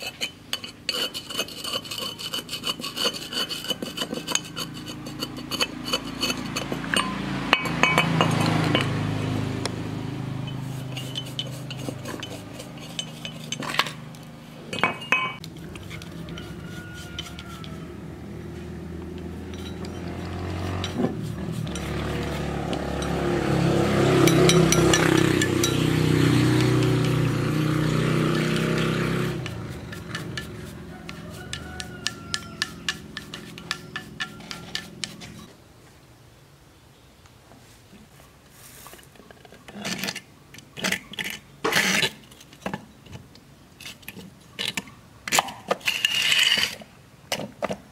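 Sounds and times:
metal tools scraping on metal: 0.0 - 9.1, 10.4 - 18.6, 19.2 - 35.5, 43.8 - 46.9.

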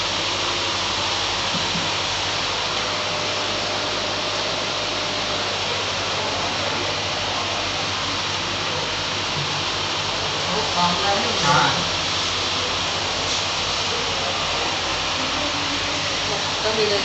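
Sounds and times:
aquarium aeration hiss: 0.0 - 17.0
low electrical hum: 0.0 - 17.0.

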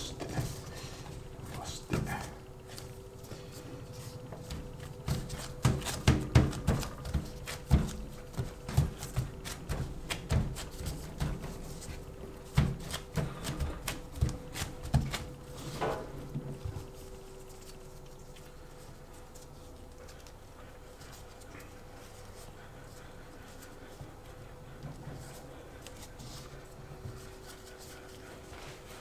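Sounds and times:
hands thumping bread dough: 4.5 - 11.6.

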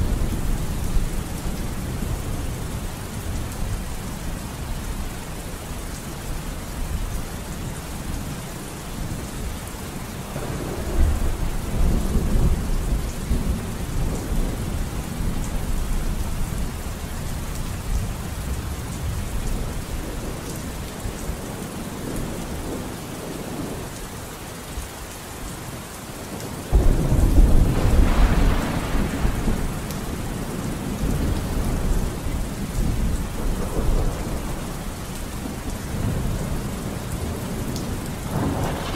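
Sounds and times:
steady rain: 0.0 - 38.9
thunder rumbling: 10.3 - 16.2, 26.7 - 38.9.

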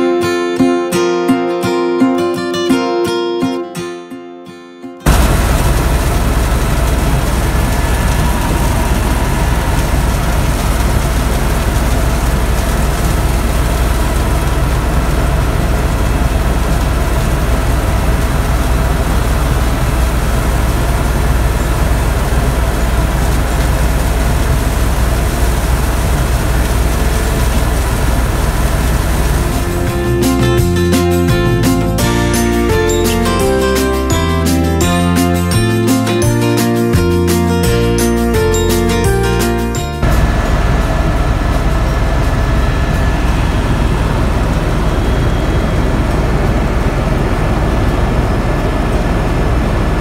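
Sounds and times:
helicopter cabin drone: 5.1 - 23.2, 40.0 - 50.0.

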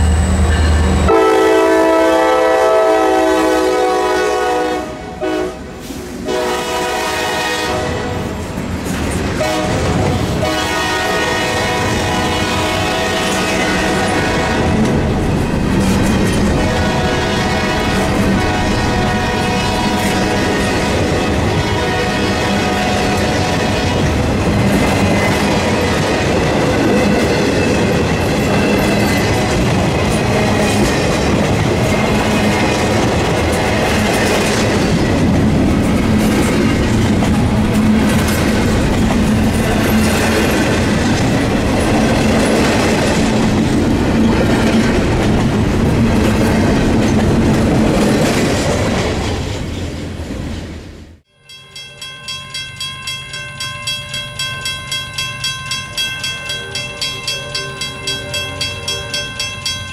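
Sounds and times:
train wheels rumbling on rails: 0.0 - 51.3
pulsing ringing: 51.3 - 59.9.

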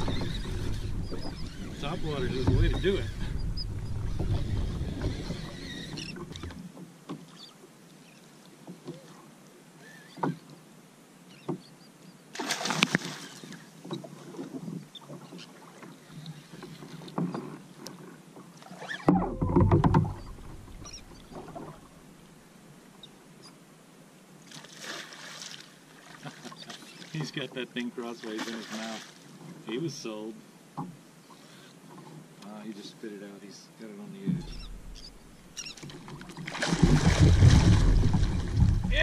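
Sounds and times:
water splashing against kayak: 0.0 - 10.6, 12.3 - 22.4, 24.4 - 30.1, 34.1 - 39.0
heavy low rumble: 0.8 - 5.1, 37.0 - 39.0
small knocks: 19.1 - 21.8.

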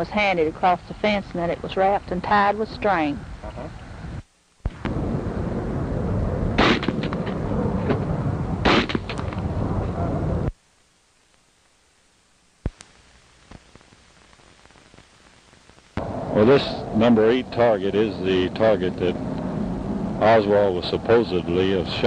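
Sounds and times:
rifle shots: 6.6 - 7.4, 8.6 - 9.2
faint click: 12.6 - 15.1
loud steady rushing noise: 16.0 - 22.0.

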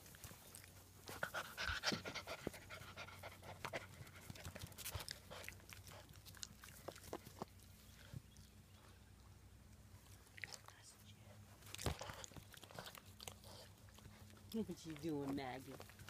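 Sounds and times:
puppy panting: 1.0 - 7.6, 11.8 - 16.0.

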